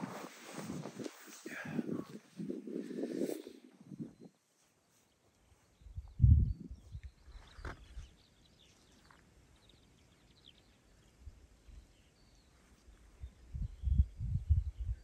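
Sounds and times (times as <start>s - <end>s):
wind buffeting microphone: 0.0s - 4.4s, 5.8s - 8.1s, 13.2s - 15.0s
faint high bird chirps: 3.8s - 15.0s.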